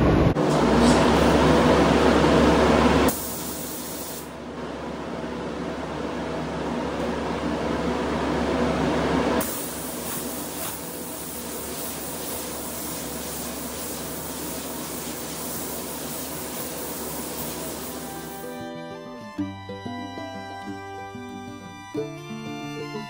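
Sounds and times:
spray gun hissing: 3.1 - 4.3, 9.4 - 18.5.

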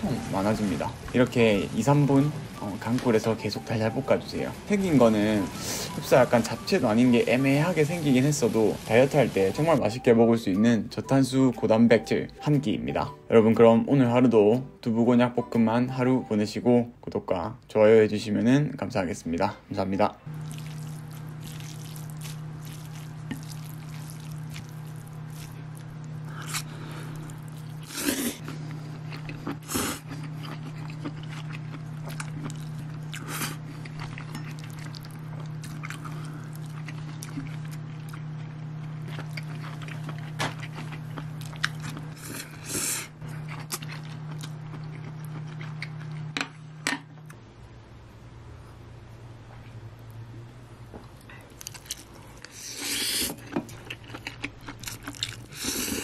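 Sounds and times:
chewing: 20.3 - 47.0, 51.0 - 56.0
person slurping noodles: 26.3 - 28.5, 29.3 - 30.3, 55.5 - 56.0.

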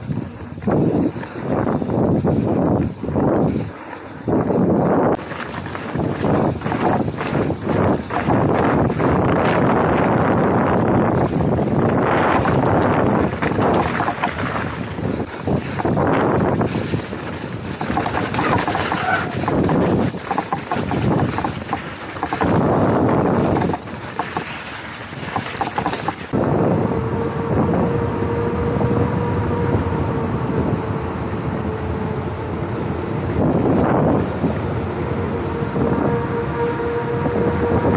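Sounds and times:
bike rumbling and rattling: 0.0 - 37.9
wind buffeting microphone: 0.0 - 37.9.

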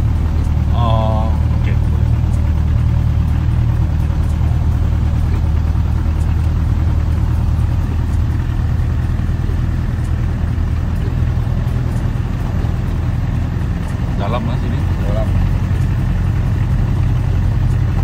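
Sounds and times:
engine running at low revs: 0.0 - 18.0.

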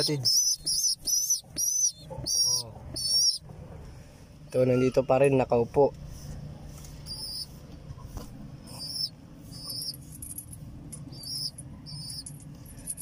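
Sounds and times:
high-pitched bird peeps: 0.0 - 3.4, 7.0 - 10.1, 11.0 - 12.3
low steady hum: 0.0 - 13.0.

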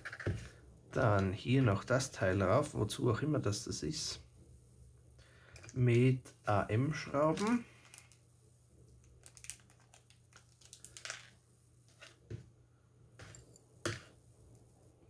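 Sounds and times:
plastic bag crinkling: 7.3 - 8.2, 9.0 - 12.2.

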